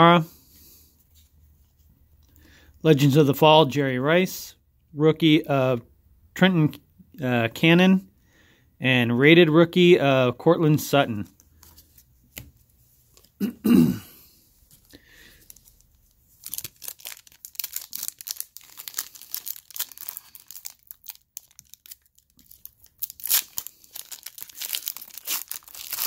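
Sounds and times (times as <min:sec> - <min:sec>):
person coughing: 0:13.4 - 0:14.3
foil wrapper crinkling and tearing: 0:15.2 - 0:26.0.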